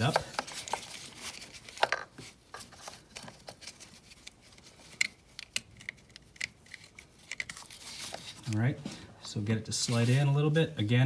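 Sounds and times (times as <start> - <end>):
plastic connectors clicking and rustling: 0.0 - 8.7.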